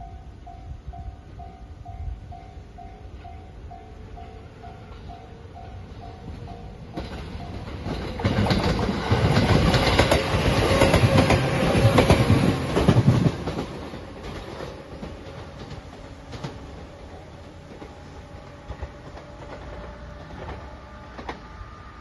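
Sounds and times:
train rumble: 0.0s - 22.0s
train wheels clacking over rail joints: 6.3s - 21.6s.

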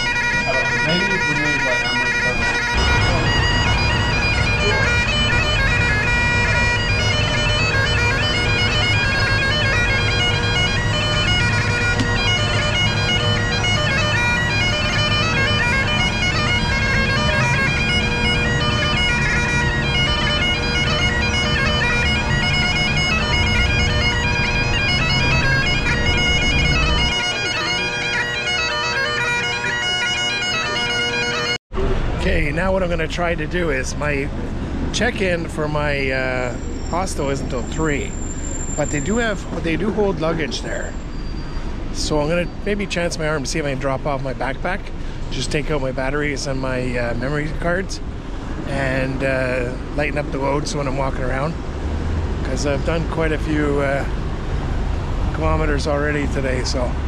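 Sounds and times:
deep accompaniment: 0.0s - 38.1s, 38.8s - 41.1s
bagpipe melody over drones: 0.0s - 57.0s.

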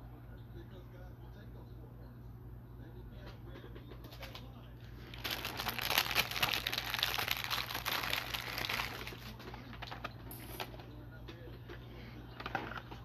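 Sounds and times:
crinkling and crackling: 4.0s - 10.9s.

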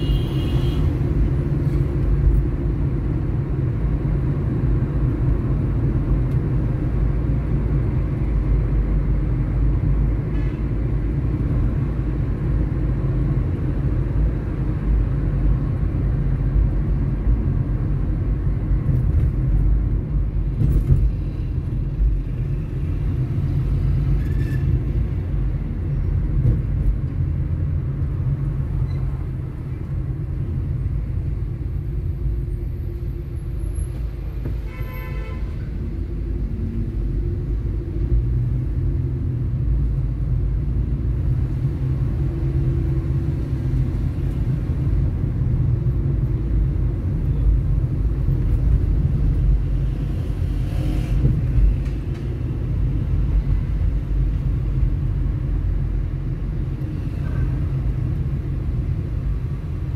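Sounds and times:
car horn: 0.0s - 1.0s, 34.6s - 35.6s
engine and road rumble: 0.0s - 59.9s.

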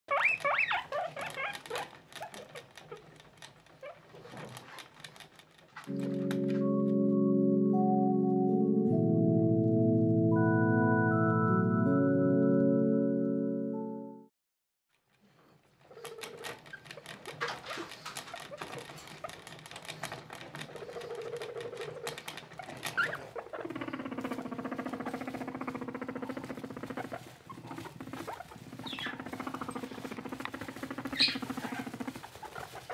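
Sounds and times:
guinea pigs squeaking: 0.1s - 5.2s, 15.9s - 32.9s
sustained music chord: 5.9s - 14.3s
rustling in hay bedding: 24.1s - 32.9s.

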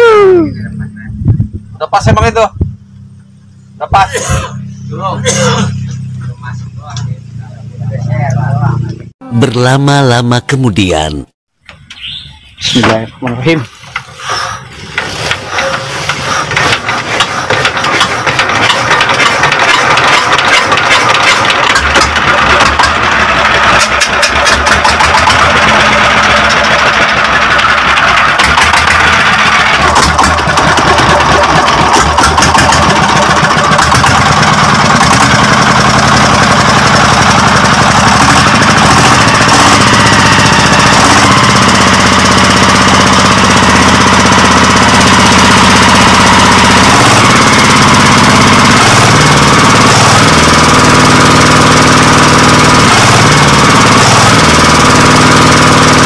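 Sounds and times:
diesel engine knocking: 14.9s - 56.0s.

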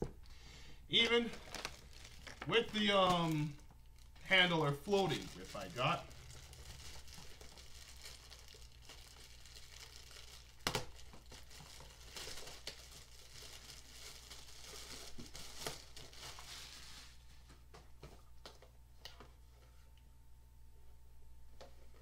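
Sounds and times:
packaging crinkling: 1.0s - 17.3s.

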